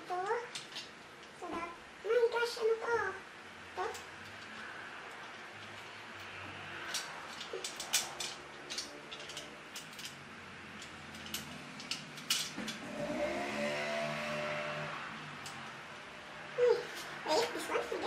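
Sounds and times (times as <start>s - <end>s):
plastic parts clicking: 3.9s - 10.2s.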